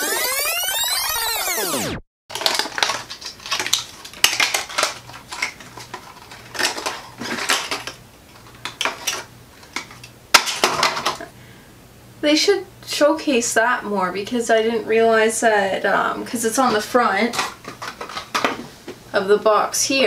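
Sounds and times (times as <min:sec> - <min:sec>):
plastic packaging clicking and clattering: 0:02.3 - 0:11.3, 0:16.7 - 0:18.7.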